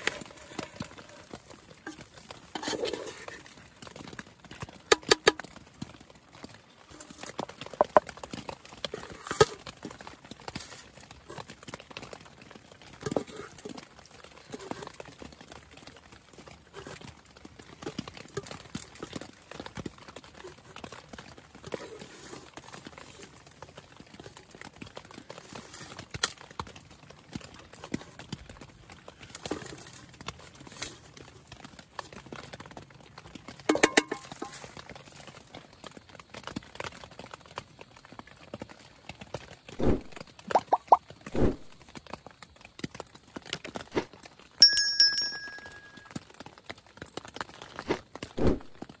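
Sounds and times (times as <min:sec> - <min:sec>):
spoon tapping a plate: 0:33.7 - 0:34.3.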